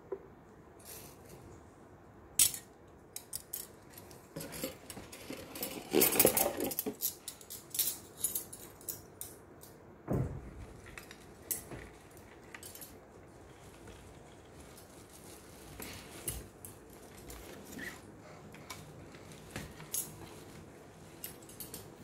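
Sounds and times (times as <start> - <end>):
metal cutlery clattering: 3.2 - 9.3
dull thump: 10.1 - 10.6.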